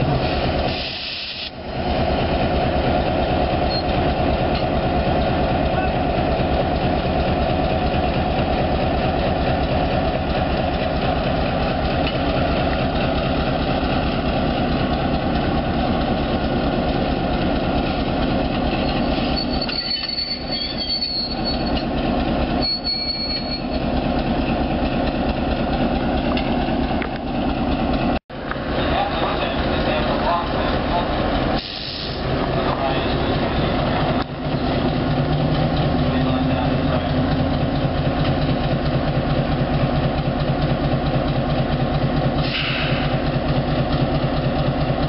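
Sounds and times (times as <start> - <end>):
diesel locomotive engine running: 0.0 - 45.0
high wheel squeal: 3.6 - 3.9, 18.7 - 24.0.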